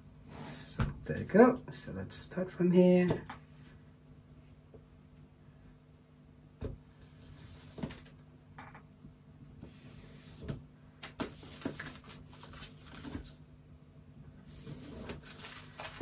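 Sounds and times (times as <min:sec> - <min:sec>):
knife scraping cardboard: 0:14.5 - 0:15.7.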